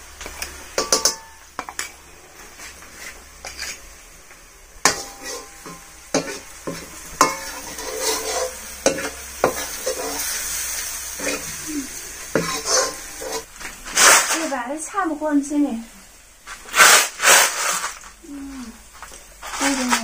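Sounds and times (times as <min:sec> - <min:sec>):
food sizzling in hot oil: 0:00.0 - 0:18.2
spoon scraping a wok: 0:00.2 - 0:04.0, 0:04.8 - 0:14.6, 0:16.5 - 0:18.1.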